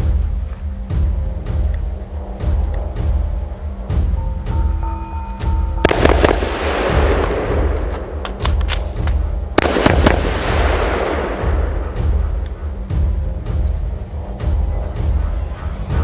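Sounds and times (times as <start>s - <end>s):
music with heavy bass beat: 0.0s - 16.0s
rifle shots with echo: 5.8s - 12.6s.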